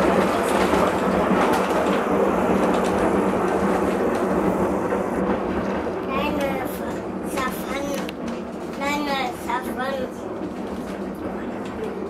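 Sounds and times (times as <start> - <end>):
rail car rumble: 0.0 - 12.0.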